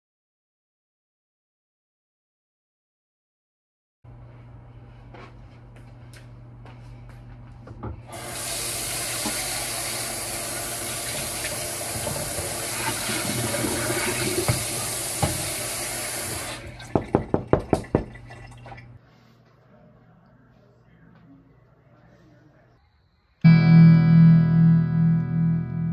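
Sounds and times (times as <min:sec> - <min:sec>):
water running from tap: 0:08.1 - 0:19.0.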